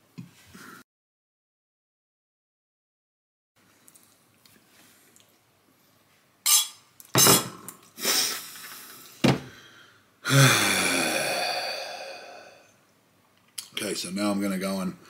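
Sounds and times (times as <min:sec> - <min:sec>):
man exhaling loudly: 0:09.5 - 0:12.8
man groaning sigh: 0:10.2 - 0:12.7.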